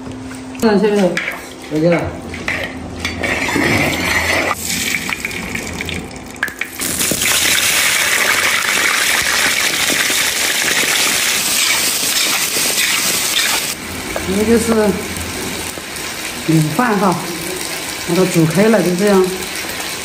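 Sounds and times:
food sizzling in hot oil: 0:04.5 - 0:20.0.

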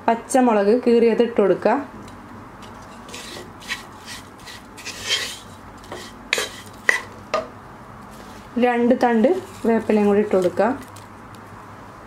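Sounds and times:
wooden spoon scraping a pan: 0:02.7 - 0:07.2, 0:08.1 - 0:08.6, 0:09.2 - 0:10.8.

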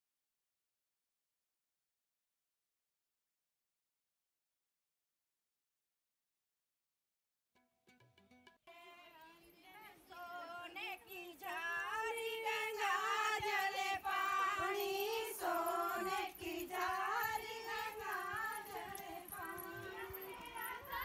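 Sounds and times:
women singing together: 0:08.7 - 0:21.0.

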